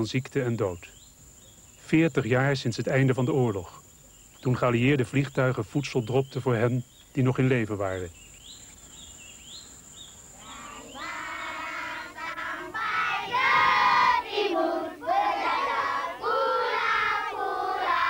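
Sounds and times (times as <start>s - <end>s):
faint chirping: 0.0s - 18.0s
children singing together: 10.4s - 18.0s.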